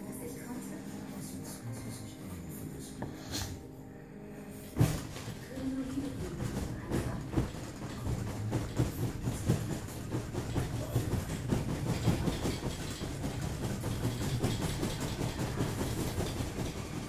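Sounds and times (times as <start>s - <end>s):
bed rattling and knocking: 4.7s - 17.0s.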